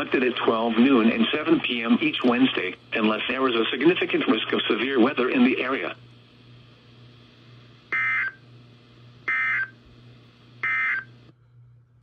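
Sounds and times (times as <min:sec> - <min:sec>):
faint radio hiss: 0:00.0 - 0:07.9
digital data tone bursts: 0:09.3 - 0:09.7, 0:10.6 - 0:11.1.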